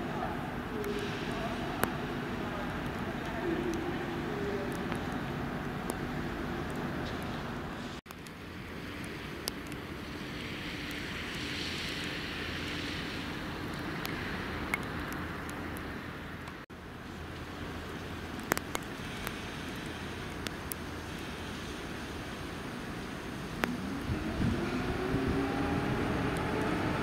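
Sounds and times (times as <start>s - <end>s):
low rumble and hiss: 0.0s - 27.0s
electric locomotive approaching: 23.6s - 27.0s.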